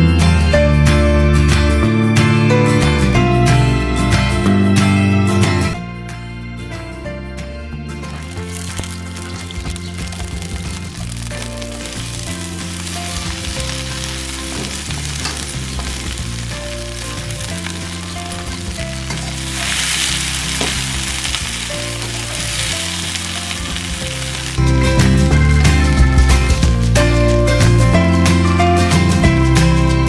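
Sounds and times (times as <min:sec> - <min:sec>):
okra sizzling in oil: 0:08.1 - 0:24.9.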